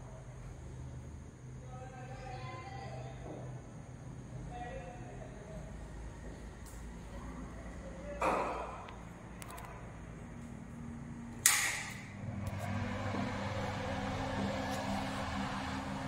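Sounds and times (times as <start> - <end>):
steady low hum: 8.8 - 16.0.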